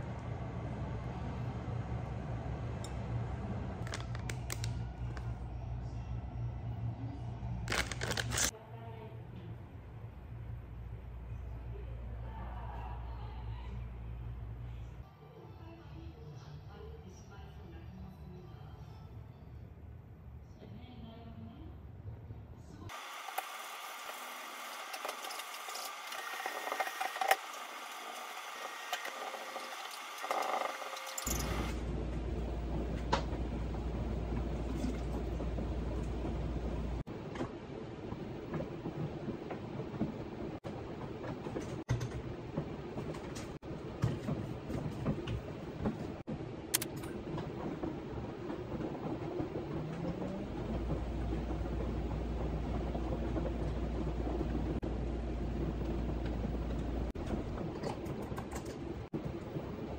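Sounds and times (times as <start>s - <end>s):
steady low hum: 0.0s - 16.7s, 24.0s - 59.9s
plastic bag crinkling: 7.7s - 8.5s.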